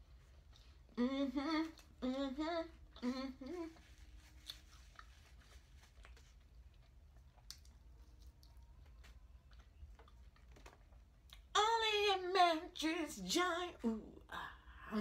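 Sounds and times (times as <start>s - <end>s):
woman humming: 0.9s - 4.0s.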